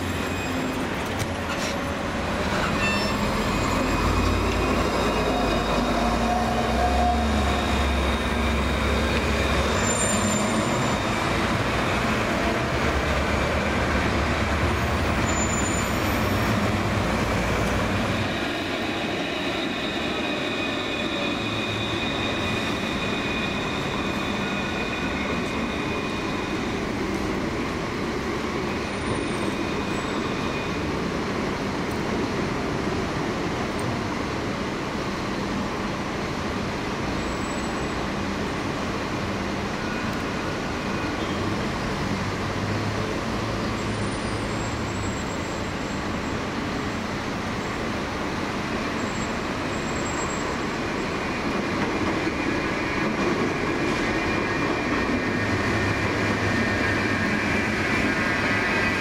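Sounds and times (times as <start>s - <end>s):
tram wheels rumbling: 0.0s - 59.0s
wheel squeal: 2.4s - 11.4s, 14.7s - 16.7s, 18.1s - 26.8s.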